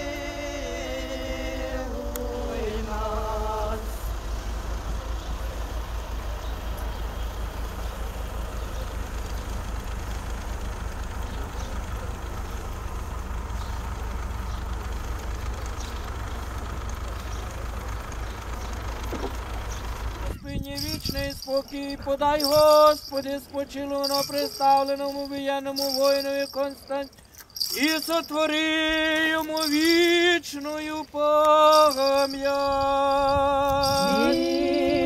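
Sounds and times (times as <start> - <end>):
voices chanting unaccompanied: 0.0 - 5.2, 21.4 - 35.0
low vehicle engine rumble: 0.0 - 35.0.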